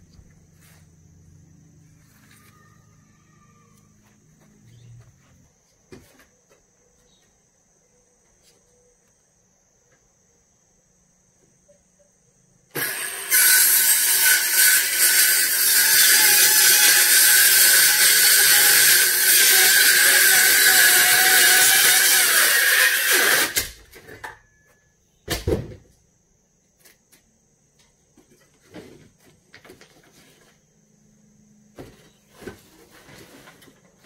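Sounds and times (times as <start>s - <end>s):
circular saw cutting plywood: 12.7s - 23.8s
thud: 25.3s - 25.9s.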